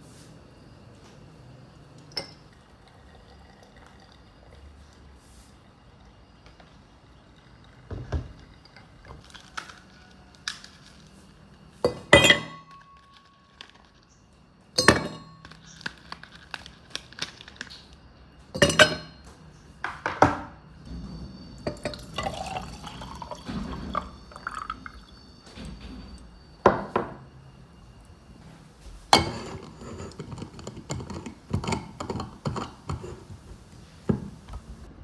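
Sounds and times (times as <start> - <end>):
kitchenware clinking: 2.1 - 2.6, 11.8 - 13.8, 14.8 - 16.1, 18.5 - 27.3, 29.1 - 34.5
liquid pouring into container: 2.5 - 5.1, 21.7 - 25.3.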